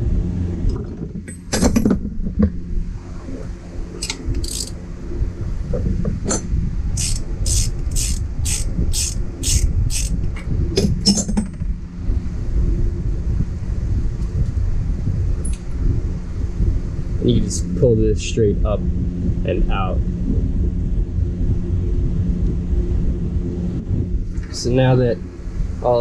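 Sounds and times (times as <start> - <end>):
low hum: 0.0 - 26.0
ratchet wrench clicking: 4.0 - 4.8, 7.0 - 10.2.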